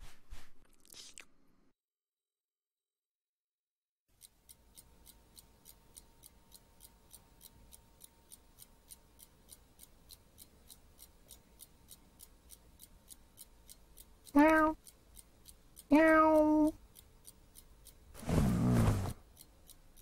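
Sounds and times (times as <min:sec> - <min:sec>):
clock ticking: 0:04.1 - 0:20.0.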